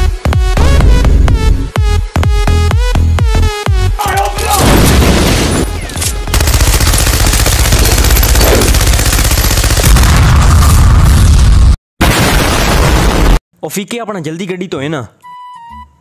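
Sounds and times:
gunshots: 4.2 - 11.2
explosion blast: 4.6 - 5.7, 9.8 - 13.4
rapid machine-gun fire: 6.2 - 10.8, 12.0 - 13.4.

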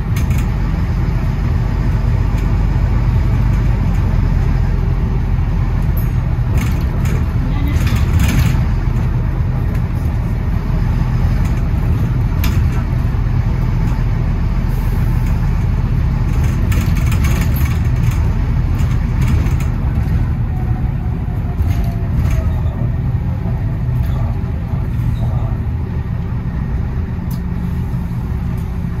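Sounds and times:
bus engine droning: 0.0 - 29.0
knocks and rattles: 5.8 - 10.3, 11.2 - 13.2, 15.7 - 20.4.

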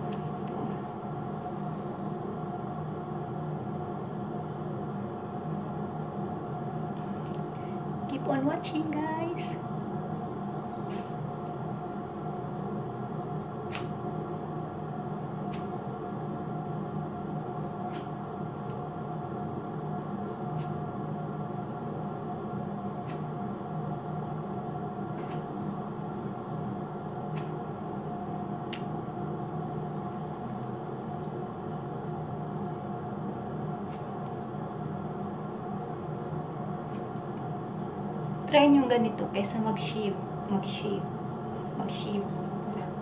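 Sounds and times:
steady hum: 0.0 - 43.0
wax pulling clicks: 13.3 - 17.2, 27.1 - 35.3, 36.6 - 38.5.

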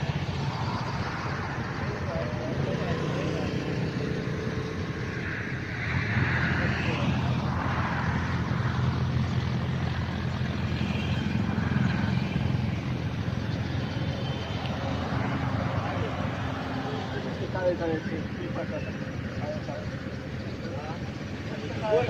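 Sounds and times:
vehicle engine and road noise: 0.0 - 22.0.

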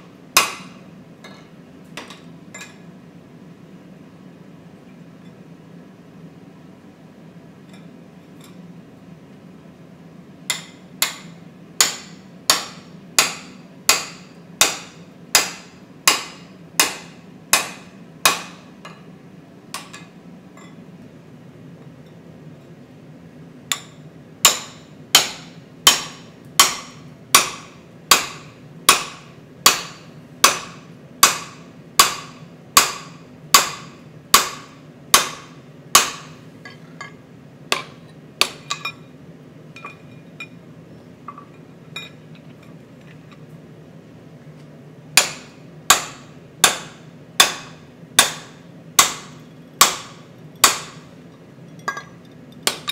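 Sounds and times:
hammer striking punch on metal: 0.4 - 2.8, 10.5 - 19.0, 23.7 - 36.4, 37.7 - 39.0, 45.2 - 51.1.

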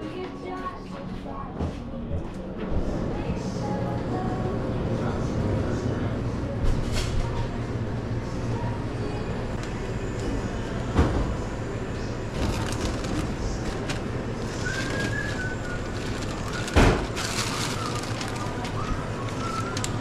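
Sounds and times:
low equipment hum: 0.0 - 20.0
takeout bag rustling: 12.3 - 20.0.

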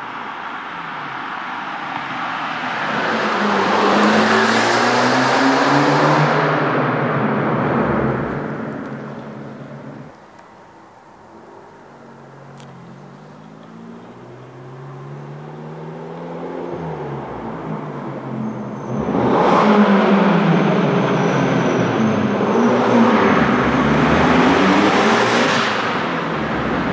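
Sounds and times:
car engine accelerating through gears: 2.4 - 10.1, 12.0 - 26.9.

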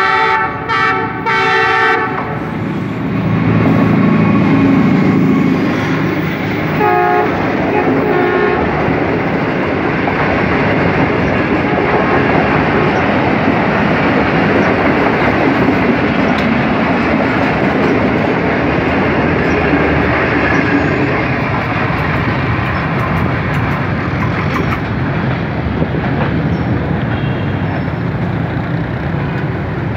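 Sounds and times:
train wheels running on rails: 0.0 - 29.9.

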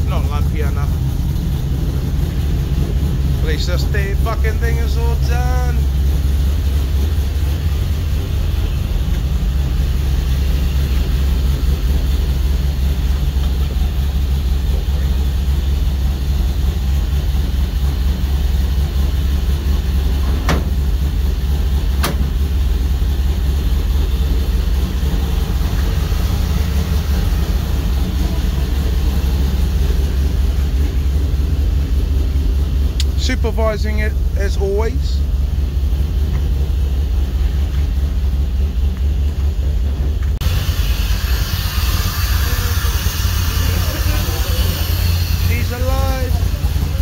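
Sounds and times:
car engine idling: 0.0 - 47.0
sharp clicks under bonnet: 22.0 - 22.3.

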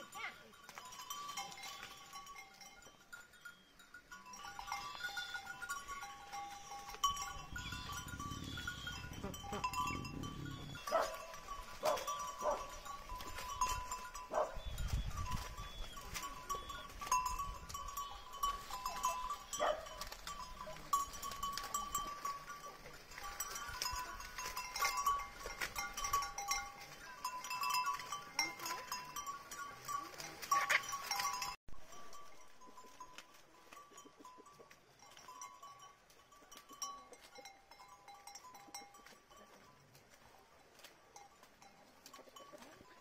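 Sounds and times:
leaves rustling and crackling: 0.0 - 43.0
goats bleating: 4.4 - 5.8, 7.4 - 11.3.

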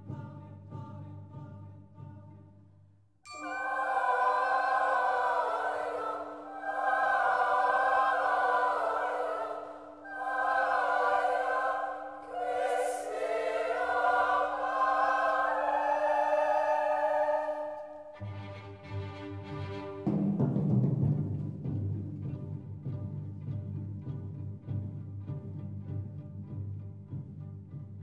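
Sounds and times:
choir singing: 3.3 - 18.3.

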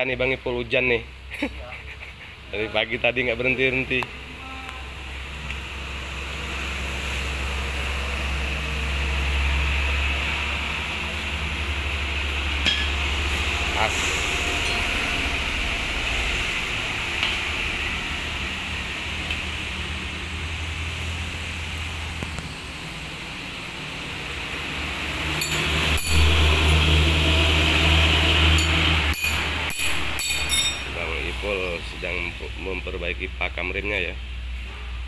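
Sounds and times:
sharp metallic clinks: 25.4 - 26.8, 28.6 - 31.0.

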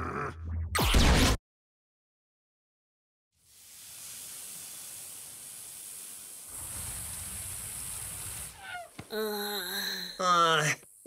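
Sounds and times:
background hiss: 3.4 - 11.0.

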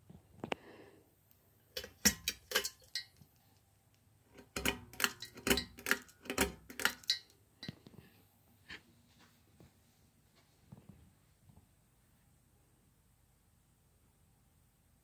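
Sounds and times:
bead chain clinking on fixture: 4.4 - 7.3.

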